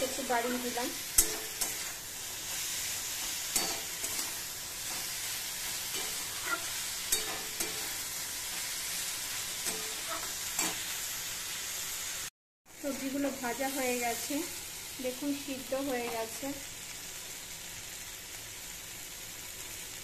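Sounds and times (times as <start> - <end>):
vegetables sizzling in a pan: 0.0 - 20.0
metal spatula scraping a pan: 0.4 - 11.1.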